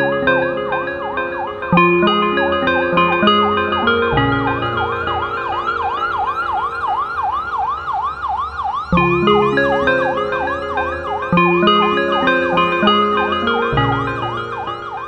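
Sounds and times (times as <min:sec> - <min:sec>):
keyboard chords: 0:00.0 - 0:15.0
siren-like wailing synth tone: 0:00.0 - 0:15.0
bass line: 0:01.7 - 0:06.3, 0:08.9 - 0:15.0.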